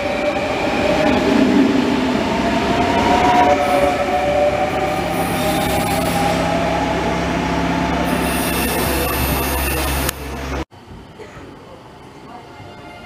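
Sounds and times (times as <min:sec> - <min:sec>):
train low hum: 0:00.0 - 0:13.0
high-pitched squeals: 0:02.4 - 0:10.7.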